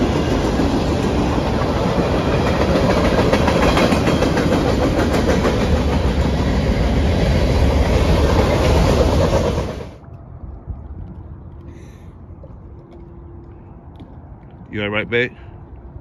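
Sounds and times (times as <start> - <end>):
train wheels on rails: 0.0 - 10.0
wheels clicking over rail joints: 0.0 - 10.0.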